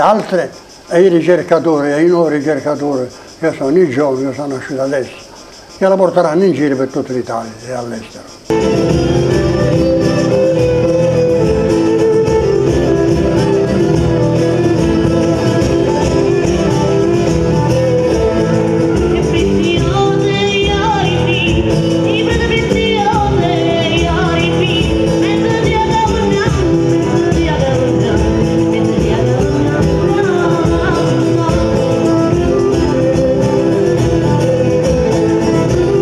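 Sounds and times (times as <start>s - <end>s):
tambourine: 0.0s - 36.0s
guitars playing: 8.5s - 36.0s
woman singing: 17.8s - 36.0s.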